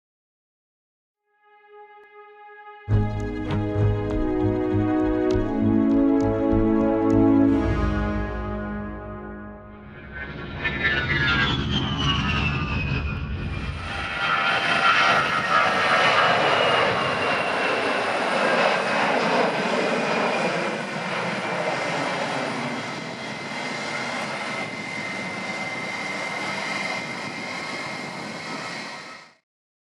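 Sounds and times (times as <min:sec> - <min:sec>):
jet engines roaring at takeoff: 0:09.7 - 0:29.4.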